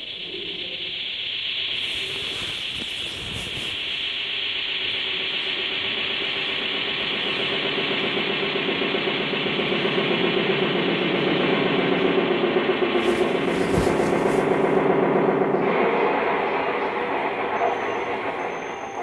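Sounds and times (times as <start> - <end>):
machine drone with hiss: 0.0 - 19.0.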